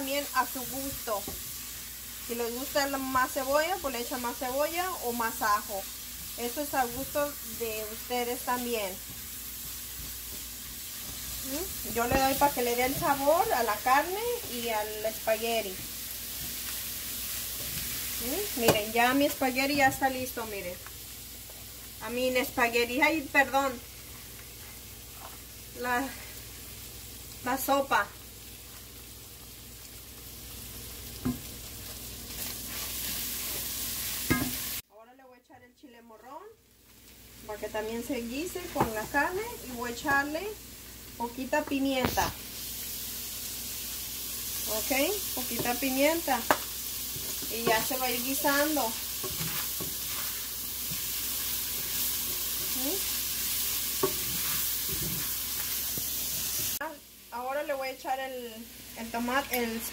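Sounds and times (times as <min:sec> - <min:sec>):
meat sizzling in a pan: 0:00.0 - 0:34.8, 0:36.5 - 0:59.9
spatula scraping and tapping pot: 0:49.1 - 0:52.8, 0:54.0 - 0:56.8.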